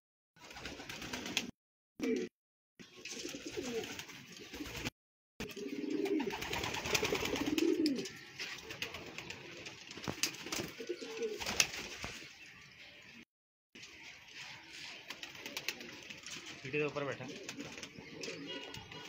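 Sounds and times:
pigeons cooing: 2.0 - 2.3, 3.1 - 11.6, 17.2 - 19.0.

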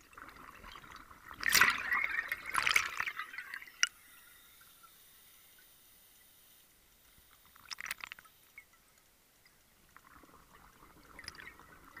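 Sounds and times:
underwater regulator bubbles: 0.0 - 4.0, 9.9 - 12.0.

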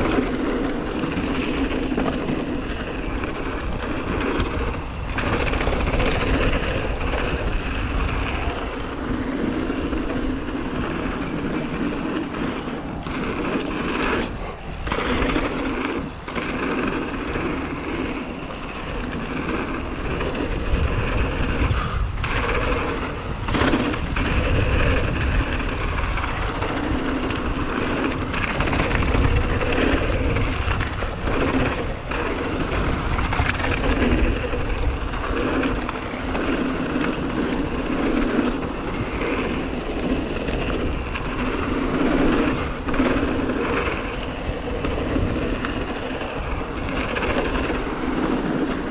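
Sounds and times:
bike rattling over bumps: 0.0 - 48.9
bike tyres rolling on gravel: 0.0 - 48.9
wind buffeting microphone: 0.0 - 48.9.

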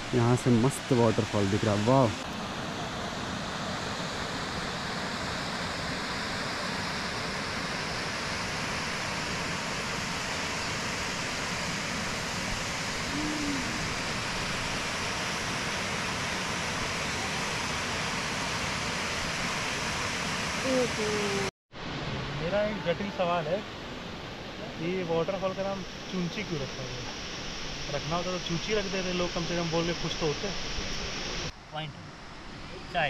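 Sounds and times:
waterfall rushing: 5.7 - 23.8.

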